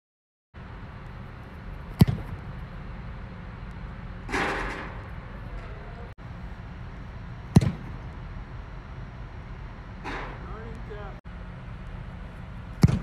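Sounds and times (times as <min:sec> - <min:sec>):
football kick thump: 0:02.0 - 0:02.4, 0:07.5 - 0:08.0, 0:12.8 - 0:13.0.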